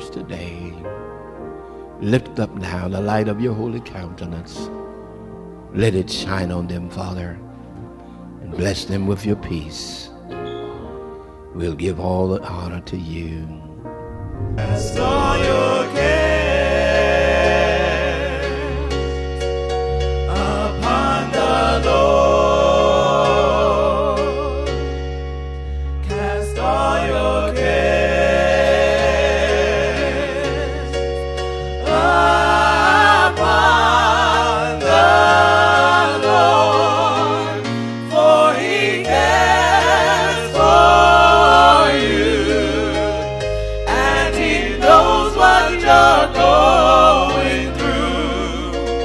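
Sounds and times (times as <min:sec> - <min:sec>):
keyboard chords and bass: 0:00.0 - 0:49.0
choir singing gospel: 0:13.8 - 0:49.0.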